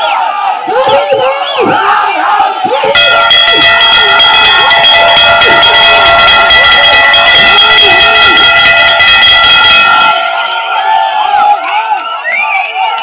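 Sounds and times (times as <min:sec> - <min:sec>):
crowd shouting: 0:00.0 - 0:13.0
metal bell clanging rapidly: 0:02.9 - 0:11.0.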